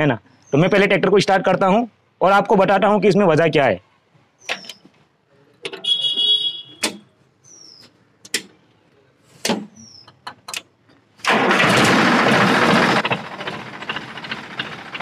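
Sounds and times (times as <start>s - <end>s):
tractor diesel engine starting: 11.2s - 15.0s.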